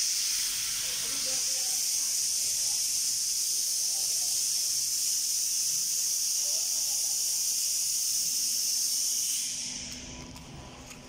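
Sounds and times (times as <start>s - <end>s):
high-pitched hiss of rushing air: 0.0s - 9.9s.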